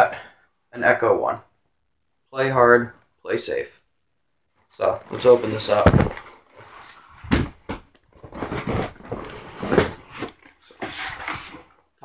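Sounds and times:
cardboard scraping and rustling: 0:05.1 - 0:11.8.

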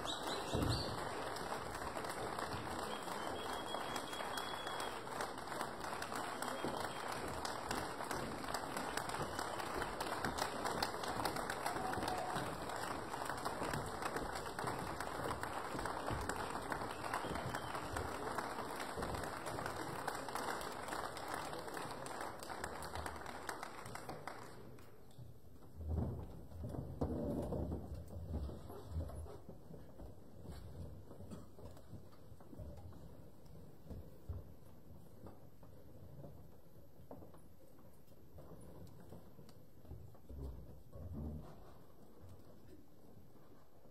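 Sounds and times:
audience applauding: 0:00.0 - 0:25.0.

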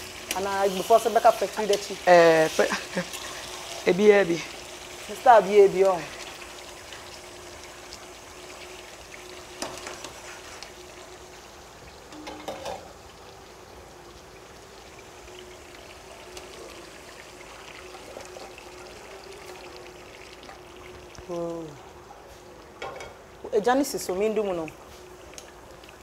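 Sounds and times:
gas stove hiss and hum: 0:00.0 - 0:26.0.

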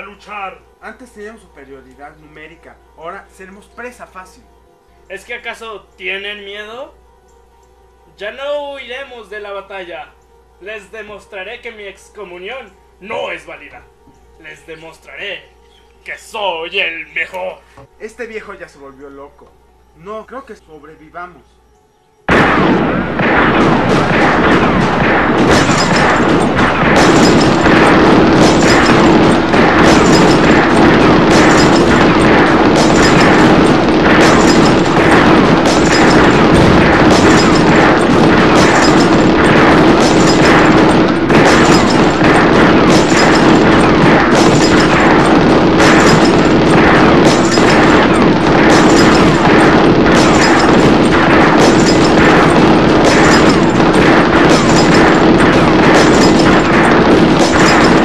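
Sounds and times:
booming explosions: 0:22.3 - 0:58.0
musket gunfire: 0:22.3 - 0:58.0.

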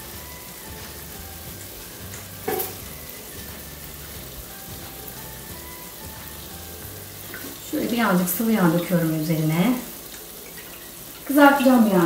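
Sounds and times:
sharp crack from frying meat: 0:00.0 - 0:07.8, 0:09.8 - 0:11.3
meat sizzling in a frying pan: 0:00.0 - 0:12.0.

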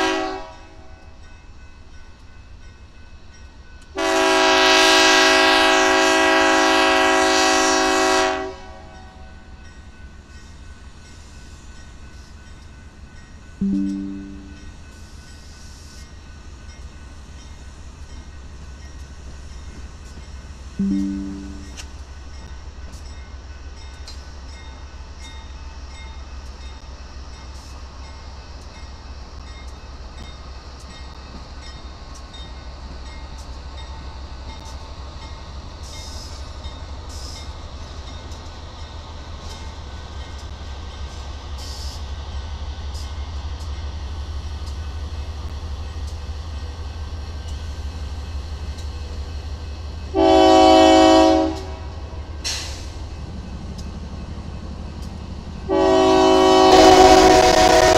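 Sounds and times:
train horn blast: 0:00.0 - 0:00.9, 0:04.0 - 0:09.2, 0:20.8 - 0:21.8, 0:50.1 - 0:52.1, 0:55.7 - 0:57.9
freight train rumbling: 0:00.0 - 0:57.9
crossing bell ringing: 0:08.5 - 0:41.3.

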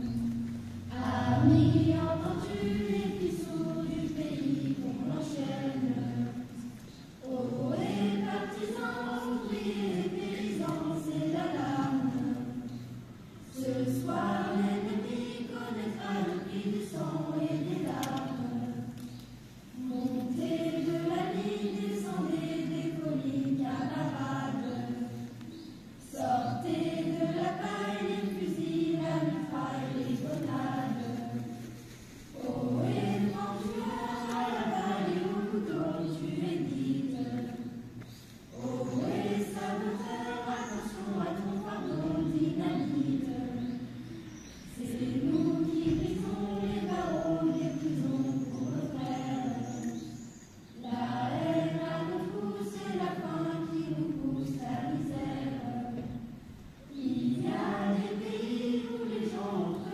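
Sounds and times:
choir singing: 0:00.0 - 0:59.9.

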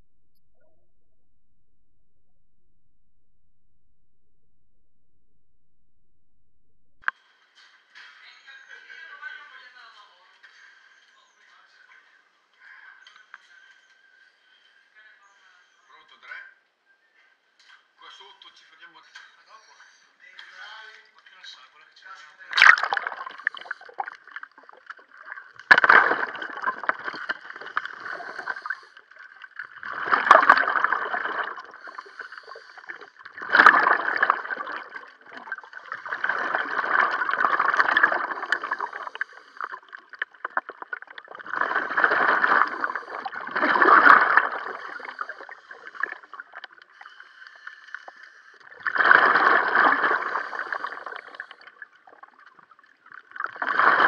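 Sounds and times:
underwater bubbles gurgling: 0:22.5 - 0:54.0.

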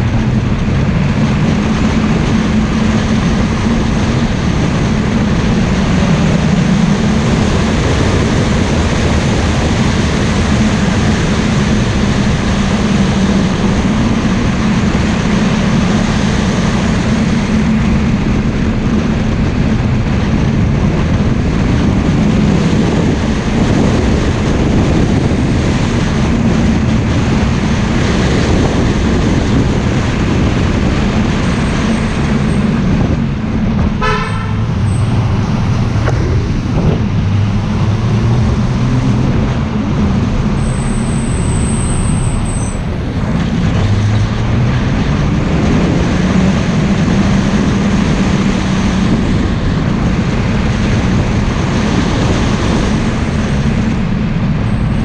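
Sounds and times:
car driving: 0:00.0 - 0:55.0
car horn toot: 0:34.0 - 0:34.8.

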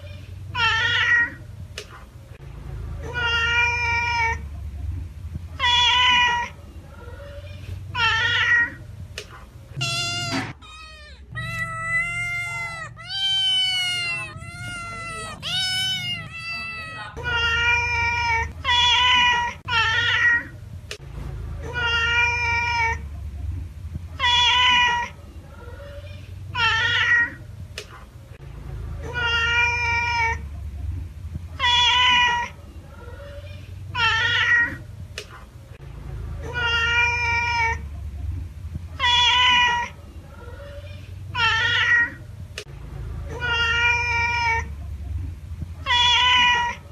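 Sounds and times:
cat meowing: 0:00.0 - 0:01.4, 0:03.0 - 0:04.4, 0:05.6 - 0:08.8, 0:09.8 - 0:20.5, 0:24.2 - 0:25.2, 0:26.6 - 0:27.4, 0:31.6 - 0:32.6, 0:33.2 - 0:34.8, 0:36.4 - 0:37.8, 0:39.0 - 0:40.0, 0:40.6 - 0:42.2, 0:43.3 - 0:44.7, 0:45.8 - 0:46.8.

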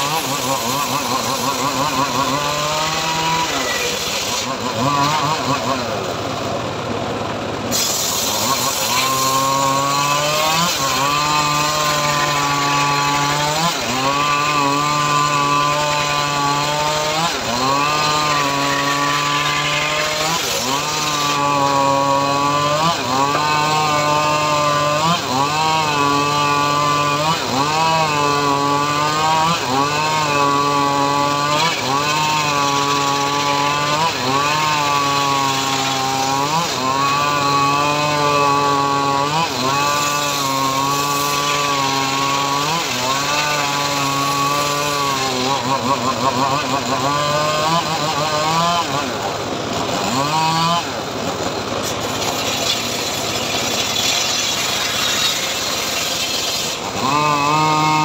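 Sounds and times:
circular saw ripping wood: 0:00.0 - 0:58.0.

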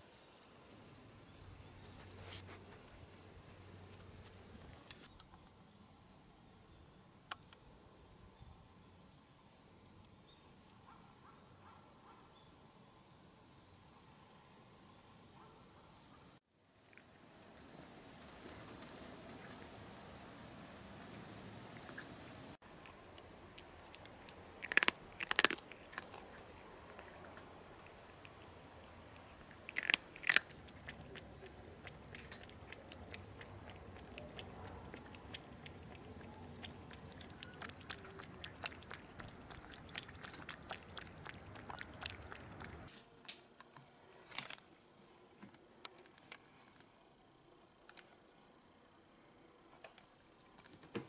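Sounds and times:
cat crunching dry kibble: 0:22.7 - 0:42.9.

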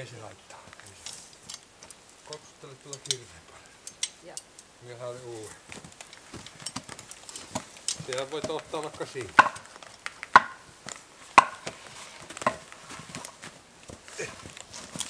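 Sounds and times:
wooden logs knocking: 0:05.6 - 0:15.0.

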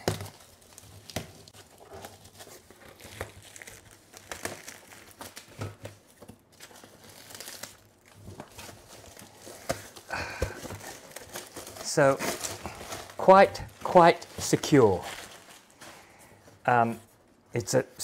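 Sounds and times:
shrink wrap crinkling and tearing: 0:00.0 - 0:16.1.

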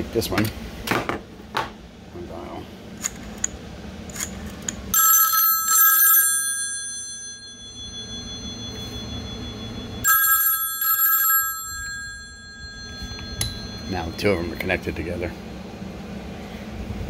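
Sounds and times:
telephone bell ringing: 0:04.9 - 0:14.6.

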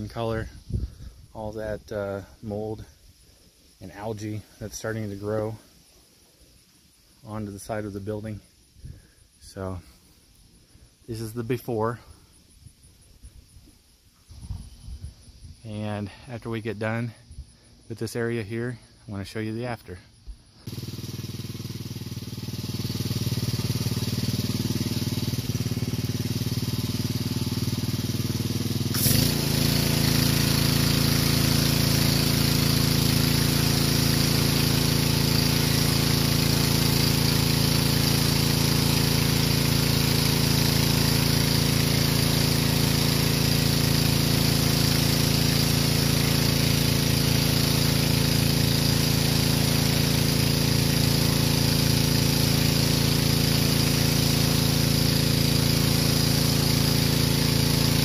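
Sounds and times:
water spray hissing on siding: 0:00.0 - 0:16.0, 0:20.6 - 0:58.0
pressure washer engine running: 0:20.6 - 0:58.0.

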